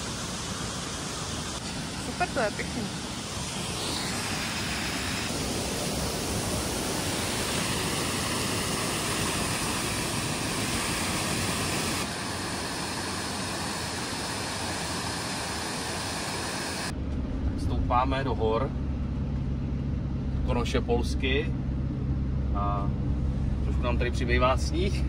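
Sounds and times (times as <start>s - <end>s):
waterfall rushing over weir: 0.0s - 16.9s.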